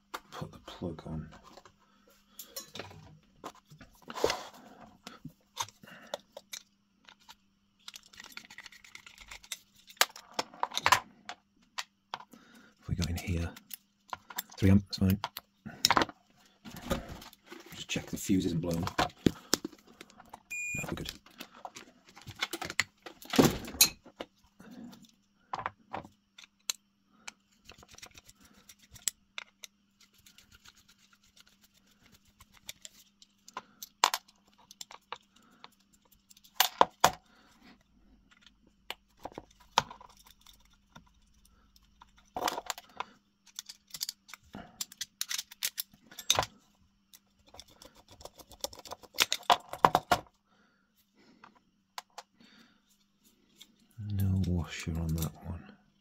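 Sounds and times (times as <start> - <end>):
short beep: 20.5 - 21.0.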